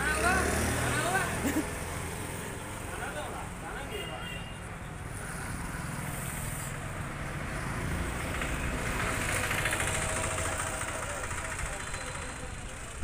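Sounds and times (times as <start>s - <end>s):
street traffic: 0.0s - 13.0s
vehicle engine running: 7.6s - 13.0s.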